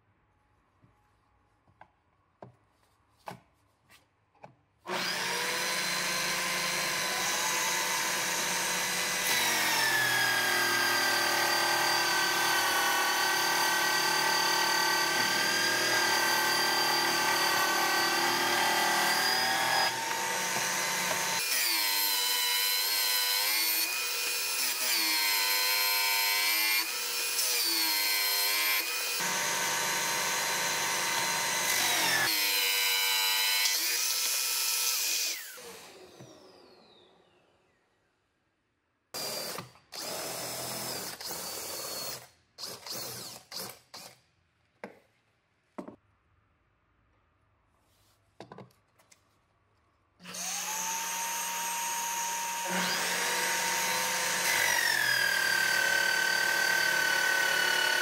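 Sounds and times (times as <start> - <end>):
power drill motor whine: 4.9 - 23.4, 28.8 - 37.8, 50.2 - 58.0.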